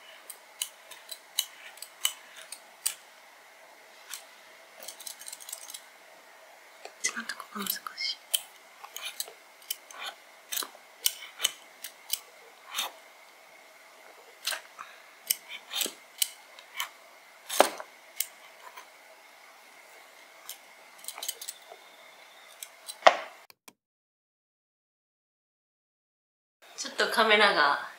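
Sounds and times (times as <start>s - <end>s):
peeler scraping potato skin: 0.2s - 3.0s, 4.0s - 5.9s, 8.2s - 13.0s, 14.3s - 18.9s, 20.4s - 23.0s.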